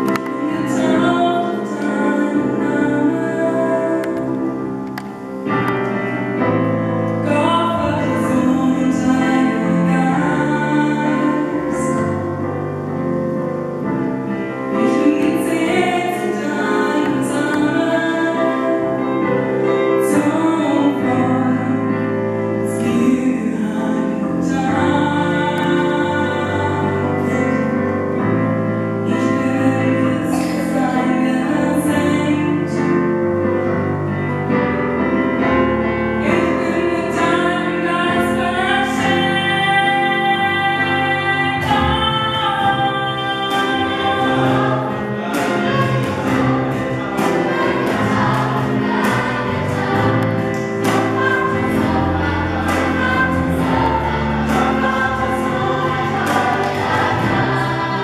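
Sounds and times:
woman singing into microphone: 0:00.0 - 0:05.0, 0:07.2 - 0:12.6, 0:14.7 - 0:28.0, 0:29.0 - 0:33.0, 0:36.2 - 0:58.0
gospel choir singing: 0:00.0 - 0:58.0
steady beat of sharp strikes: 0:45.2 - 0:58.0.

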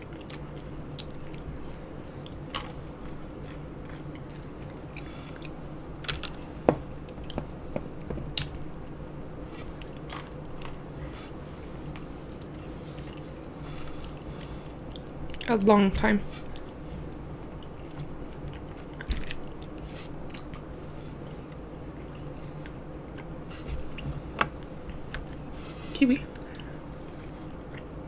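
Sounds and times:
steady low hum: 0:00.0 - 0:28.0
quiet chewing: 0:09.5 - 0:15.5, 0:16.3 - 0:28.0.

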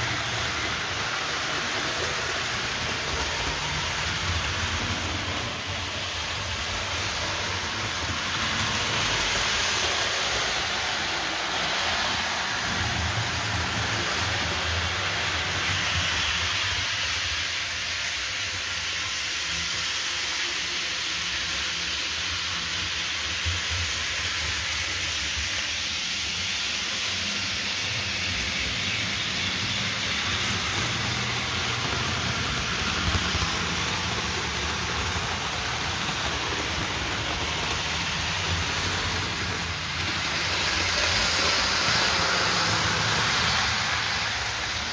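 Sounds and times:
locomotive motors: 0:00.0 - 0:16.4, 0:27.0 - 0:44.9
model train wheels on rail: 0:00.0 - 0:44.9.

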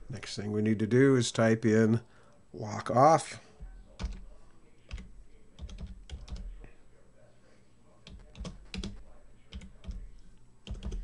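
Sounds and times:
computer keyboard typing: 0:03.8 - 0:06.7, 0:08.0 - 0:11.0.

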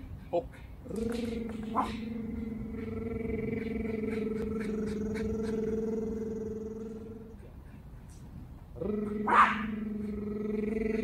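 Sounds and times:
steady motor drone: 0:00.8 - 0:07.6.

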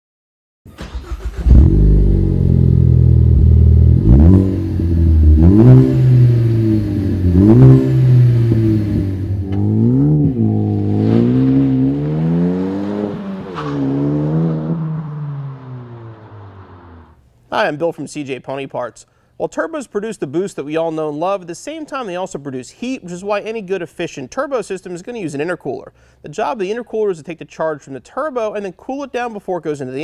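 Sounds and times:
car engine starting and revving: 0:00.7 - 0:17.2.

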